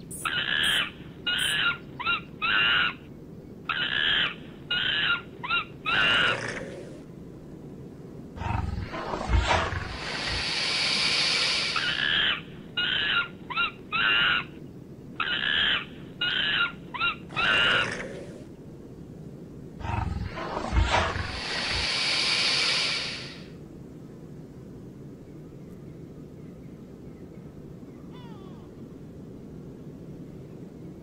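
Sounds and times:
animal hissing: 0.0 - 1.6, 8.4 - 12.4, 17.3 - 18.5, 19.8 - 23.6
animals squealing: 0.1 - 3.0, 3.7 - 6.9, 11.6 - 14.5, 15.2 - 18.4.

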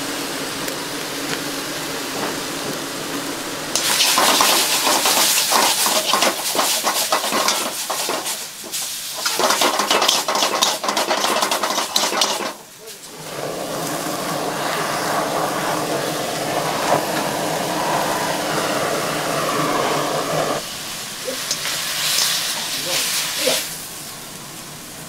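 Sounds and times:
beef sizzling in a wok: 3.6 - 25.0
tongs scraping a wok: 3.8 - 12.6.

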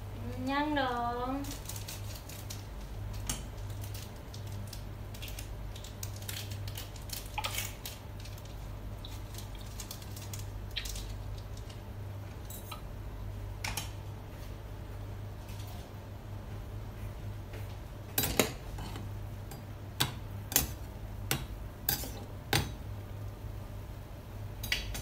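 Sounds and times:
steady low hum: 0.0 - 25.0
utensils clinking on pan and plate: 18.2 - 22.8.

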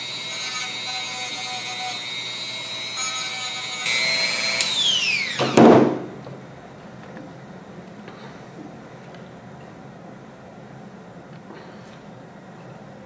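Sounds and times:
rotary tool whining: 0.0 - 5.6.

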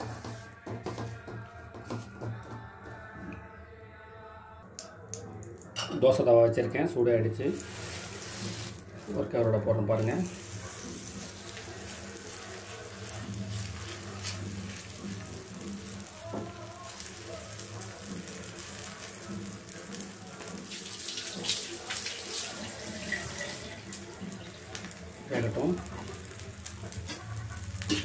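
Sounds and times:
dough sizzling on a hot pan: 7.3 - 28.0.

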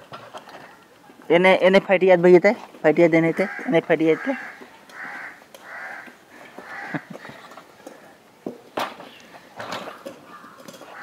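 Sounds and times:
crows cawing: 3.3 - 8.1, 9.9 - 11.0.

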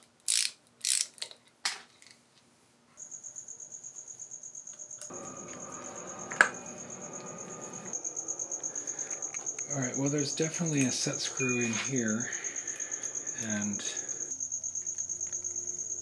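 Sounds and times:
metal parts scraping: 0.3 - 1.4
cricket chirping: 3.0 - 16.0.

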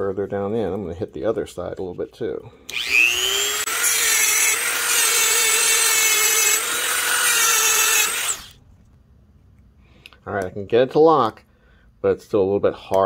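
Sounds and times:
rotary tool grinding metal: 2.7 - 8.5.

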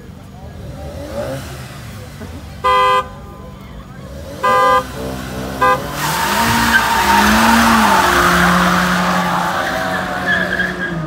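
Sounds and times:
car engine at high revs: 0.0 - 11.0
tyres squealing: 4.1 - 11.0.

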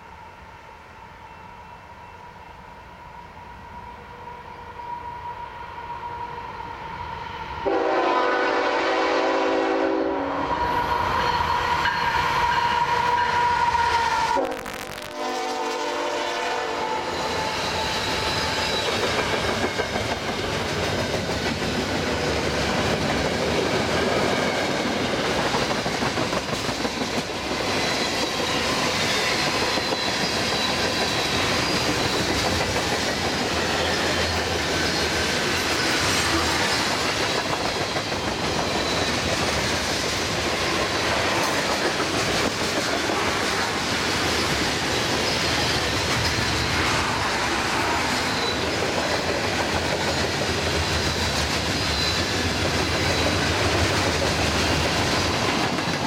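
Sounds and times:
freight locomotives approaching: 0.0 - 56.0
train air horn: 7.6 - 17.8.

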